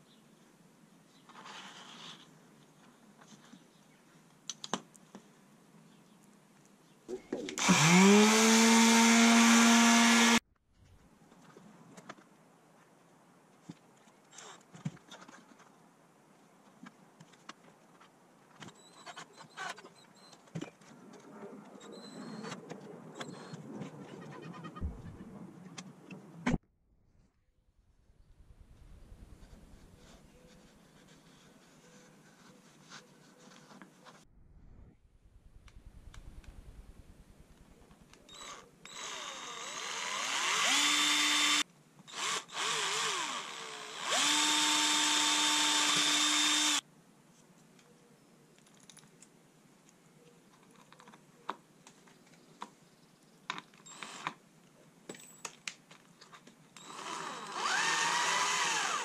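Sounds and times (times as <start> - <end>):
cordless drill whining: 7.6 - 10.4, 38.3 - 46.8, 53.8 - 54.4, 56.8 - 59.0.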